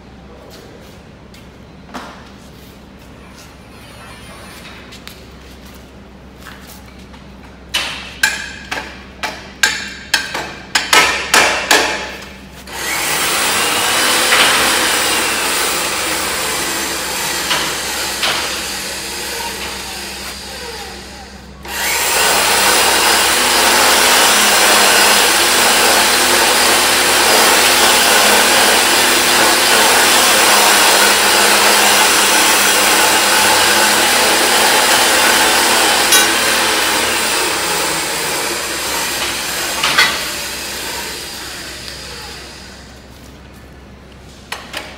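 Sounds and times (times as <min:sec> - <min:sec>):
sharp metal knocks: 0:07.8 - 0:12.1
electric motor running: 0:12.7 - 0:43.0.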